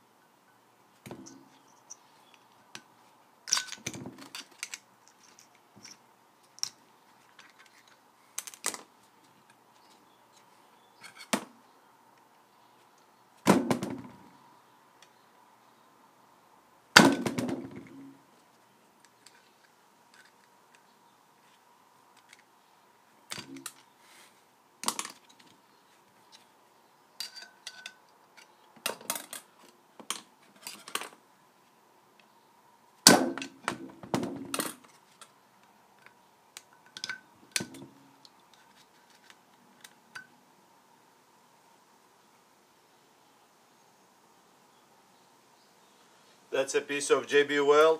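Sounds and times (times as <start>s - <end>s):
faint steady tone: 0.0s - 13.4s, 14.1s - 47.9s
screwdriver clicks and scrapes on metal: 27.2s - 28.6s.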